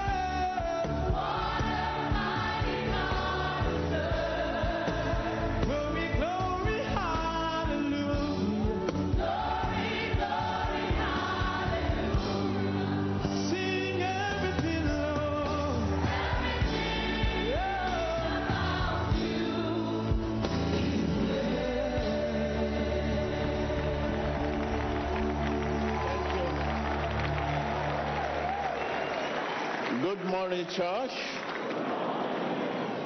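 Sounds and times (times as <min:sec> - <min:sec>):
group singing gospel song: 0:00.0 - 0:25.8.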